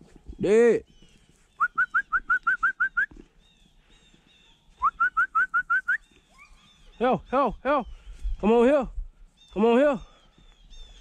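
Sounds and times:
person whistling rising notes: 1.6 - 3.2, 4.8 - 6.0.

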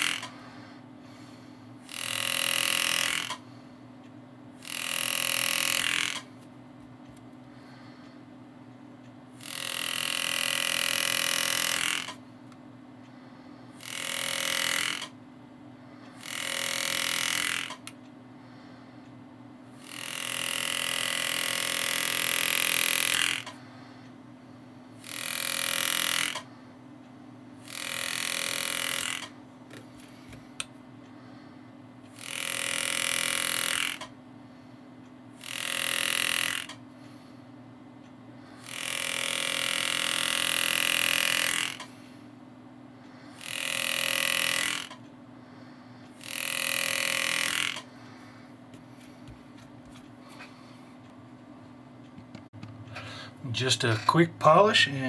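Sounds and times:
pneumatic engraver buzzing: 0.0 - 3.8, 4.6 - 6.4, 9.3 - 12.3, 13.1 - 15.2, 15.8 - 18.8, 19.7 - 24.1, 25.0 - 26.7, 27.6 - 30.4, 32.1 - 34.7, 35.3 - 37.3, 38.4 - 42.2, 43.0 - 50.8
steady low hum: 0.0 - 55.0.

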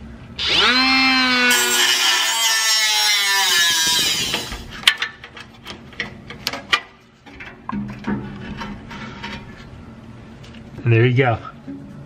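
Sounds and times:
sharp clicks and knocks: 4.3 - 9.4.

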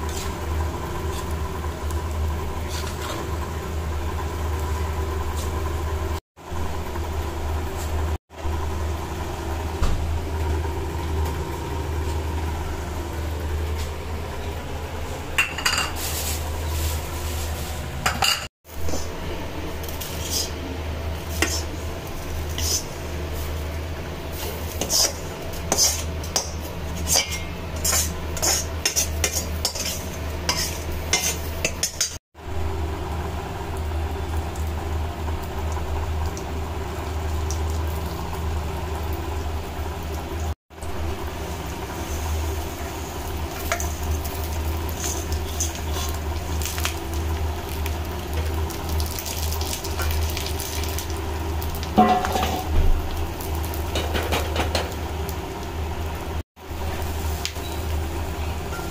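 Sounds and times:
ghee sizzling: 0.0 - 58.9
metal spatula scraping a pot: 2.6 - 3.2, 20.0 - 20.6, 21.3 - 21.7, 22.5 - 23.0, 24.3 - 32.2, 45.0 - 46.2
steel ladle stirring and clinking: 24.4 - 32.2, 52.0 - 52.7.

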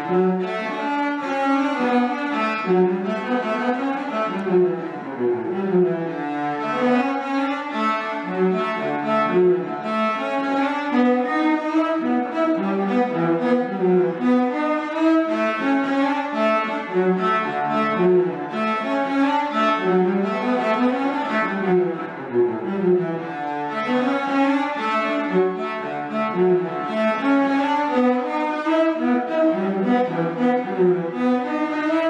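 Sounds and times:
cello duet: 0.0 - 32.0.

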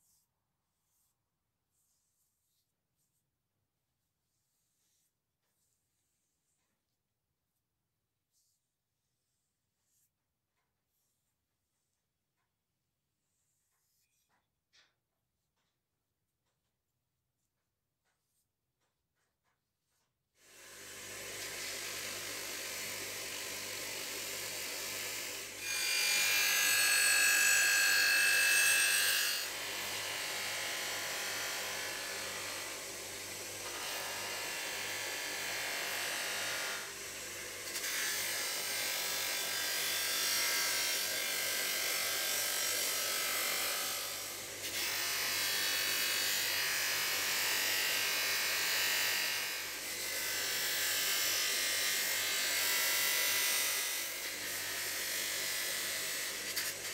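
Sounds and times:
bench grinder humming: 20.5 - 56.9.

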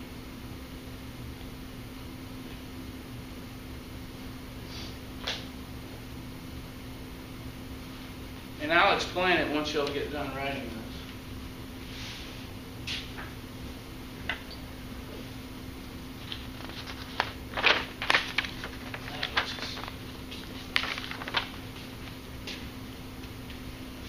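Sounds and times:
paper and desk rustles: 16.2 - 22.6.

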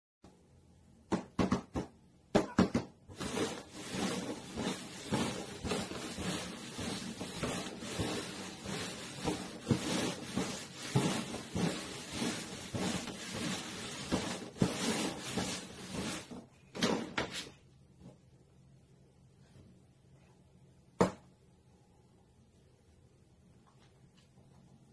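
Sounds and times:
paper cups knocking on cardboard: 1.1 - 3.6
cups scraping across cardboard: 3.1 - 16.5.

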